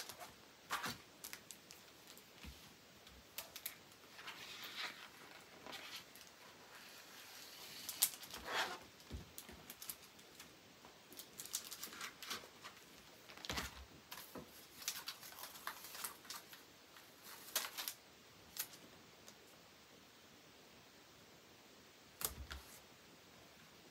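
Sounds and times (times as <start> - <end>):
paper rustling: 0.0 - 10.4, 11.1 - 18.8.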